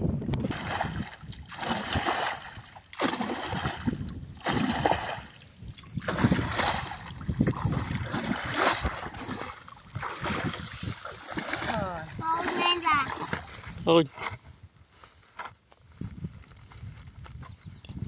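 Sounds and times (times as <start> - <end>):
muddy water sloshing and splashing: 0.4 - 14.4.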